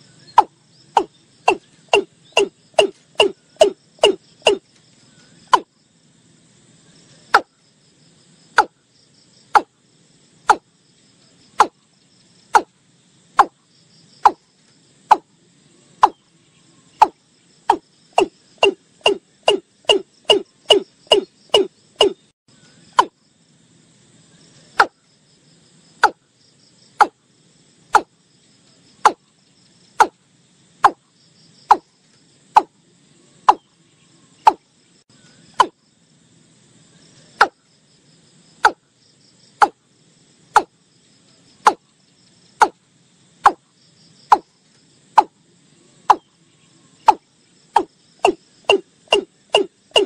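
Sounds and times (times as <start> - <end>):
bird calling repeated notes: 0.2 - 4.7, 16.9 - 22.3, 47.8 - 50.0.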